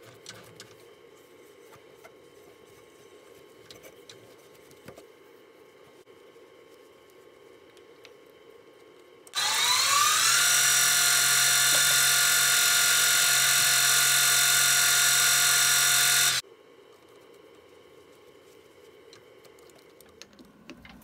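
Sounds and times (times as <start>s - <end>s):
lathe motor whine: 9.4s - 16.4s.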